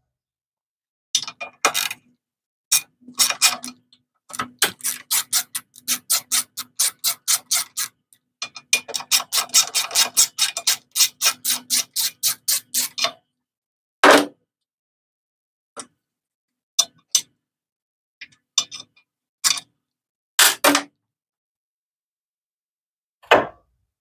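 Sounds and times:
hand ratchet clicking rapidly: 0:04.6 - 0:07.9, 0:09.0 - 0:13.0.

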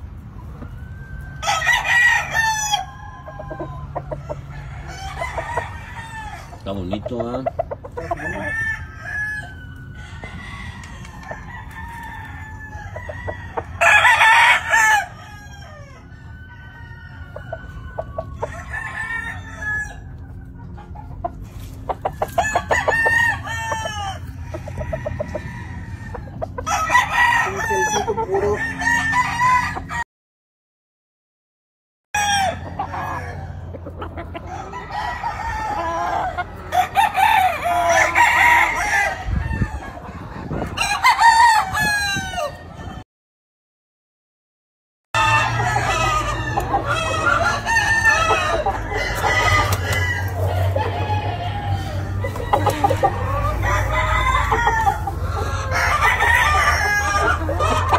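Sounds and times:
chickens clucking: 0:00.0 - 0:30.0, 0:32.2 - 0:43.0, 0:45.2 - 0:57.9
roosters crowing: 0:00.0 - 0:30.0, 0:32.2 - 0:43.0, 0:45.2 - 0:57.9.

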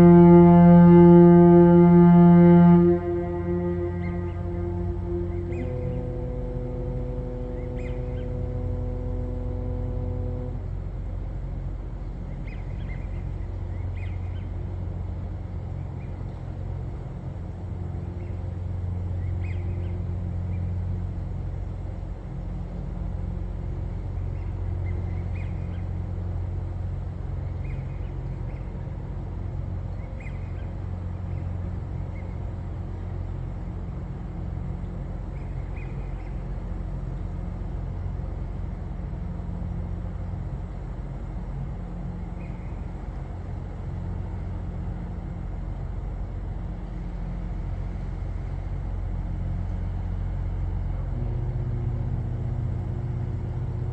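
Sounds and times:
foghorn low note: 0:00.0 - 0:12.5, 0:49.6 - 0:53.9
steady low rumble: 0:00.0 - 0:53.9
faint bird calls: 0:03.0 - 0:10.6.

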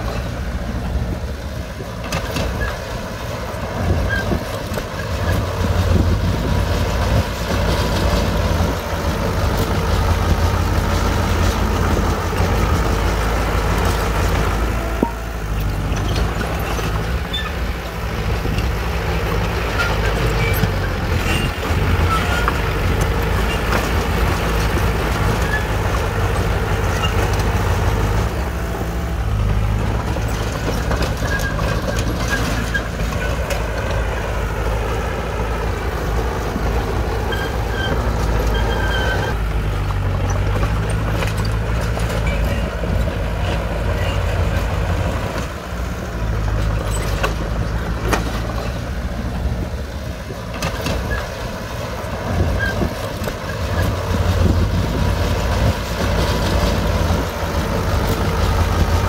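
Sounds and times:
bulldozer diesel engine running: 0:00.0 - 0:59.0
machine squeaks and knocks: 0:14.8 - 0:17.7, 0:19.6 - 0:27.8, 0:30.1 - 0:33.9, 0:37.2 - 0:39.4, 0:46.6 - 0:48.8.

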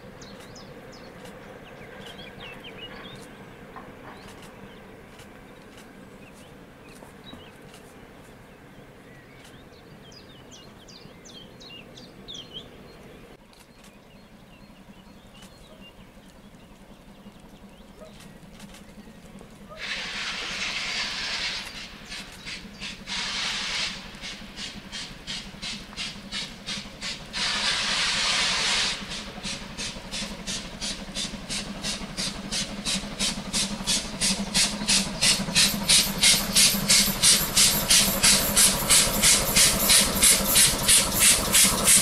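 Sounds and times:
steam locomotive exhaust beats: 0:00.0 - 0:13.0, 0:13.8 - 0:42.0
hissing steam bursts: 0:19.8 - 0:42.0.

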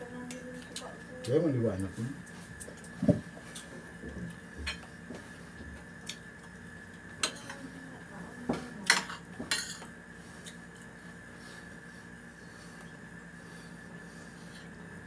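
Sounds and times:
plates and spoon clinking: 0:08.9 - 0:10.0.

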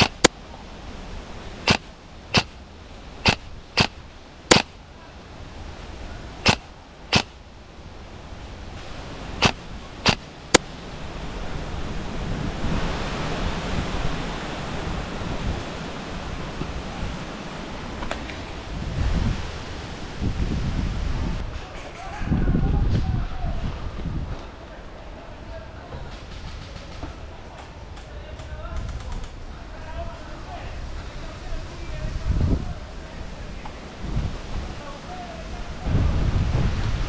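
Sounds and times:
airsoft rifle shots: 0:00.0 - 0:00.3, 0:01.7 - 0:02.6, 0:03.2 - 0:04.8, 0:06.4 - 0:07.4, 0:09.4 - 0:10.6
wind on microphone: 0:05.3 - 0:24.5, 0:30.6 - 0:37.0.

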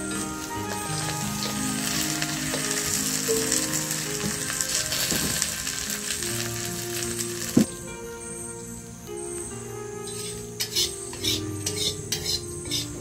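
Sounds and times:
chicken sizzling in a wok: 0:00.0 - 0:07.6
soft background music: 0:00.0 - 0:13.0
metal spatula scraping: 0:10.1 - 0:13.0.

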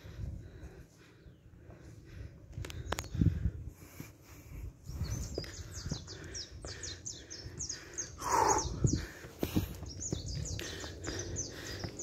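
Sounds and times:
footsteps thumping on trail: 0:08.8 - 0:12.0.

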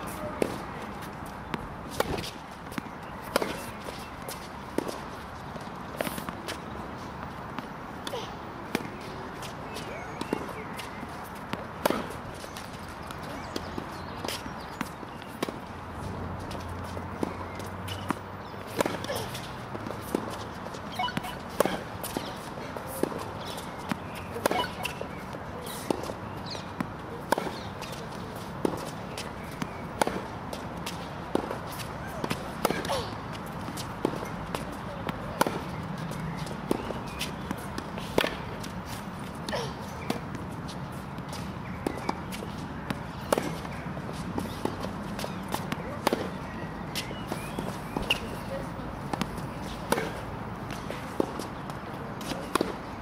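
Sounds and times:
footsteps on court: 0:00.0 - 0:53.0
tennis ball struck by racket: 0:01.5 - 0:04.0, 0:11.5 - 0:12.7, 0:16.8 - 0:35.8, 0:36.6 - 0:38.7, 0:41.4 - 0:43.8, 0:44.4 - 0:52.8.

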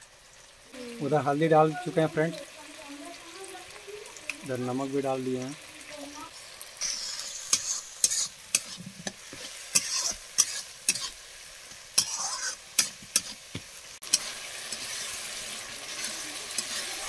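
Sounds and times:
food sizzling in oil: 0:00.0 - 0:17.0
steel spatula scraping a pan: 0:06.8 - 0:11.2, 0:12.0 - 0:13.4, 0:14.0 - 0:17.0.

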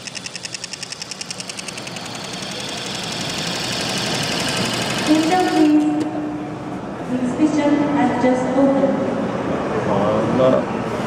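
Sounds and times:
sewing machine stitching: 0:00.0 - 0:06.1.

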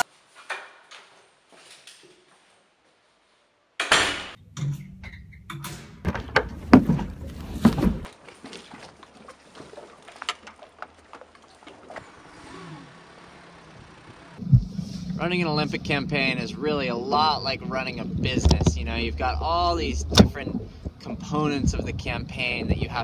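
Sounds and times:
low rumble: 0:14.4 - 0:23.0.

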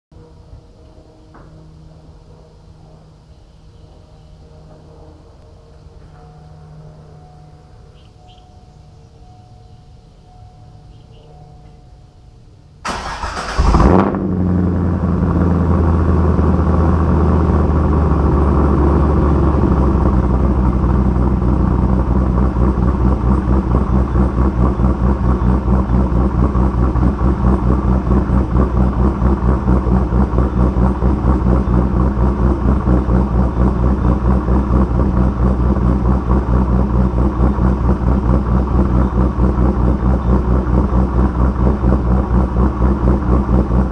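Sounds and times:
engine cold start flare: 0:12.8 - 0:14.8
engine idling with loping rhythm: 0:15.2 - 0:43.9.

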